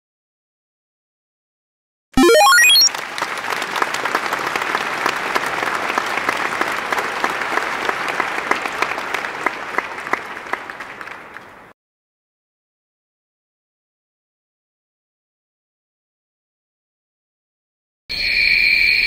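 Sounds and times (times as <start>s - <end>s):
crowd applauding: 2.2s - 11.7s.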